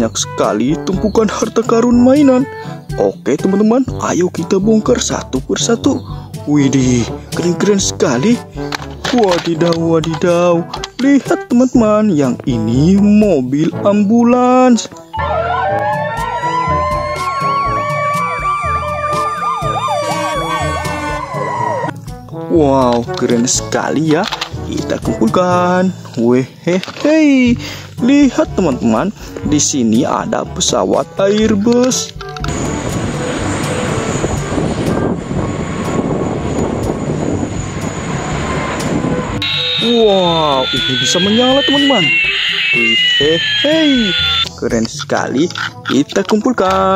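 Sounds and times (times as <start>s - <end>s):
siren wailing: 15.1s - 21.9s, 39.1s - 44.5s
siren yelping: 15.1s - 21.9s, 39.4s - 44.5s
jet airliner taking off: 32.5s - 44.4s.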